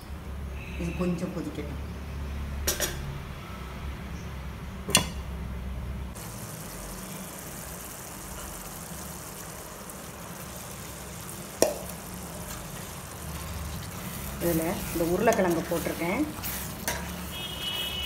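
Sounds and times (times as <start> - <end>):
stew simmering with bubbling hiss: 6.2 - 18.0.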